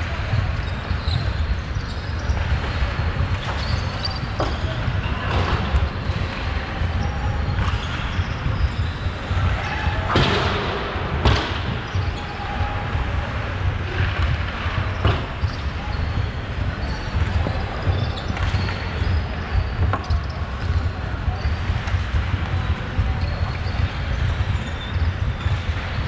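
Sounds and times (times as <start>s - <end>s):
steady low rumble: 4.8s - 17.8s.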